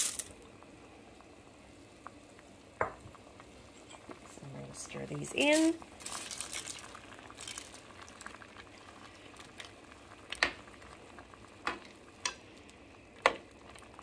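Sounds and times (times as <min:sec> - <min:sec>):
soup bubbling in a pot: 0:00.3 - 0:14.0.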